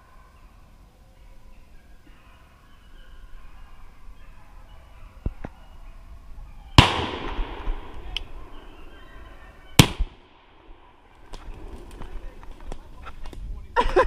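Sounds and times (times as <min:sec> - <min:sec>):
shotgun shots with echo: 0:06.8 - 0:08.6, 0:09.8 - 0:11.0.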